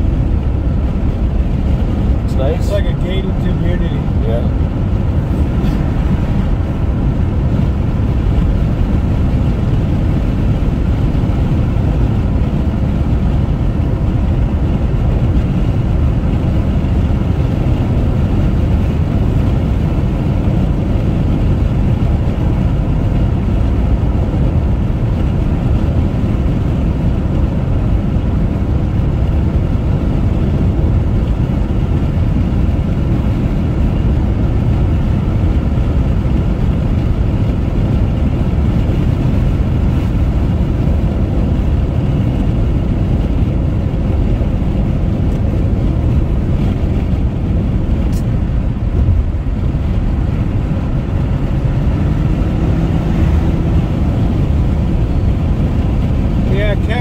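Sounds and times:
car road and engine rumble: 0:00.0 - 0:57.0.

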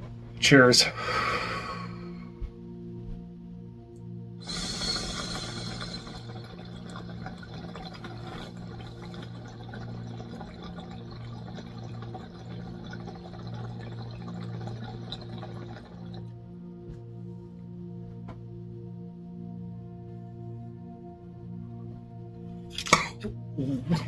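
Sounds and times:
water bubbling in bongs: 0:04.4 - 0:16.4.

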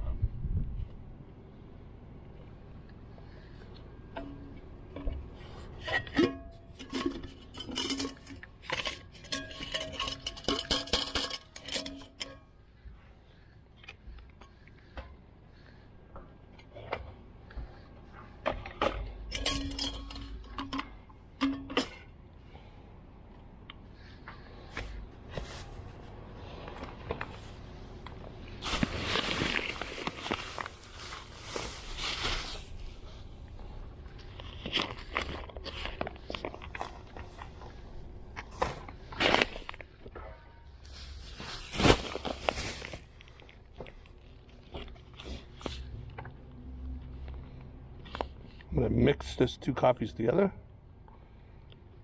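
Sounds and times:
low steady tone: 0:00.0 - 0:13.4
metal canister and lid clinking: 0:04.2 - 0:12.5, 0:18.8 - 0:22.1
paper bag crinkling: 0:28.6 - 0:32.9, 0:40.8 - 0:43.5.

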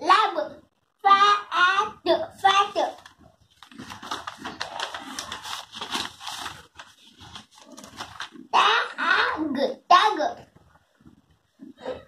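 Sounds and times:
child reading aloud: 0:00.0 - 0:03.1, 0:07.6 - 0:10.5
paper pages rustling: 0:02.7 - 0:08.5.

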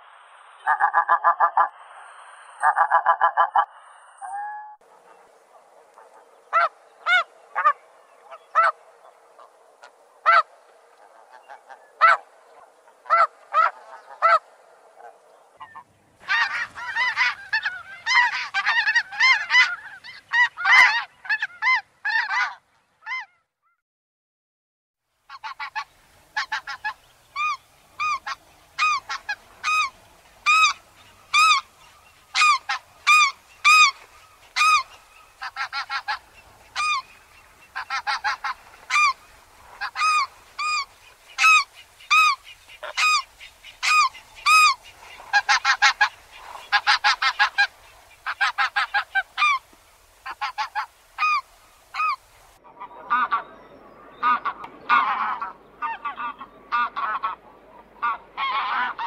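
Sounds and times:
goose call: 0:05.9 - 0:08.8, 0:09.4 - 0:12.2, 0:13.0 - 0:14.4, 0:15.0 - 0:23.4, 0:25.3 - 0:53.6, 0:58.0 - 0:59.0
goose yelping calls: 0:05.9 - 0:08.8, 0:09.4 - 0:10.5, 0:11.1 - 0:12.2, 0:13.0 - 0:14.4, 0:15.0 - 0:23.4, 0:25.3 - 0:49.6, 0:50.2 - 0:52.2, 0:58.0 - 0:59.0.

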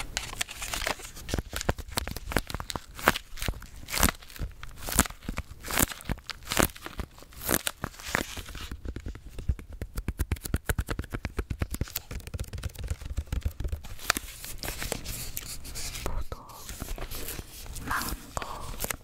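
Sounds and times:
plastic crinkling: 0:00.0 - 0:09.8.

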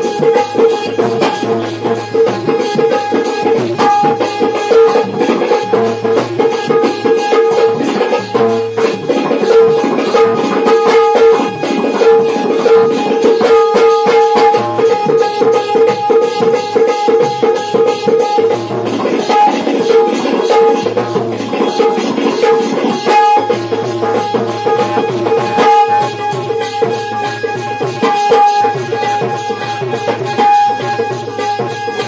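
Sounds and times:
fast hand drum: 0:00.0 - 0:32.0
loud held melody line: 0:00.0 - 0:32.0
rattle-like percussion: 0:00.0 - 0:32.0.

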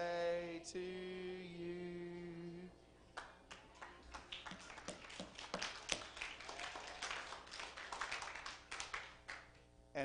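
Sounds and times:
congregation hand clapping: 0:03.2 - 0:09.6.

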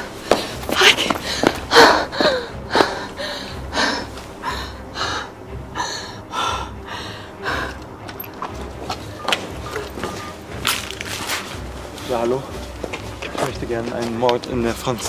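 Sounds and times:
person panting and gasping: 0:00.2 - 0:08.0.

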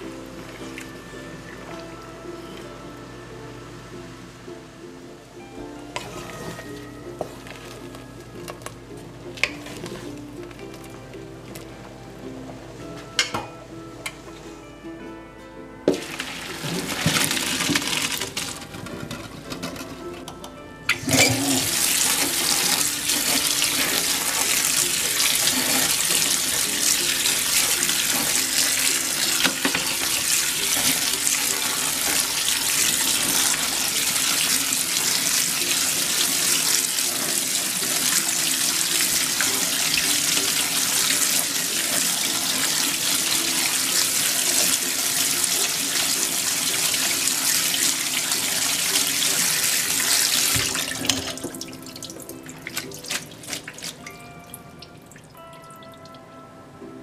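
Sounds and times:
water running from a tap: 0:15.9 - 0:18.6, 0:20.9 - 0:54.2
water splashing into a metal sink: 0:15.9 - 0:19.8, 0:20.9 - 0:54.2.

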